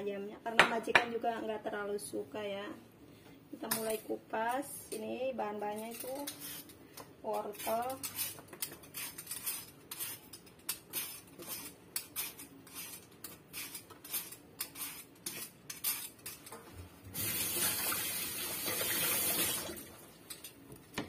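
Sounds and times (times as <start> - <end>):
peeler scraping carrot: 5.8 - 6.7, 7.3 - 16.5
kitchen tap running: 17.1 - 20.1.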